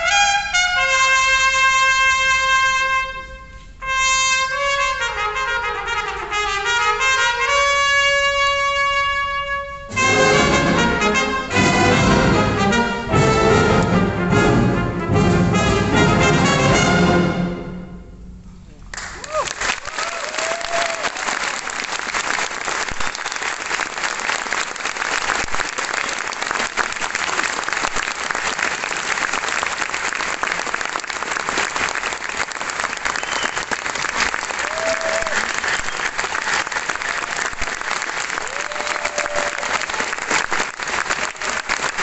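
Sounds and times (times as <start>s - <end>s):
audience applauding: 18.9s - 42.0s.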